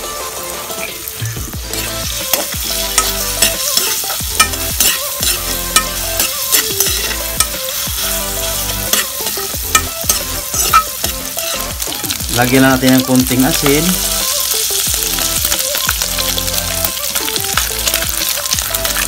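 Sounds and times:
fat sizzling in hot oil: 0.0 - 19.0
metal ladle scraping wok: 1.6 - 12.3.

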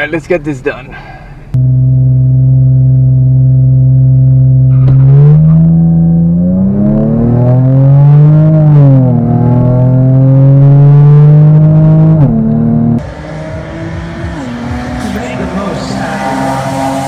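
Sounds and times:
car engine from inside cabin: 1.5 - 17.0.

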